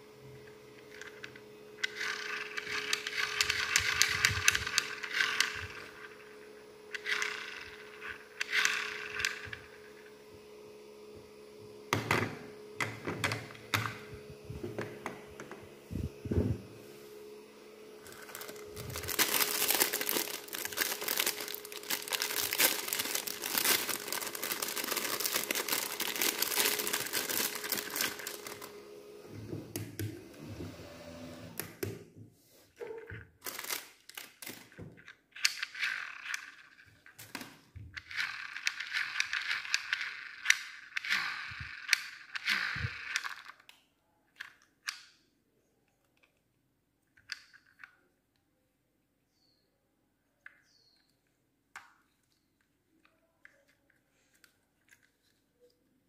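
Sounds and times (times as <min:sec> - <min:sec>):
small fan motor humming: 0:00.0 - 0:32.0
plastic bag crinkling: 0:18.0 - 0:28.8, 0:32.9 - 0:35.0.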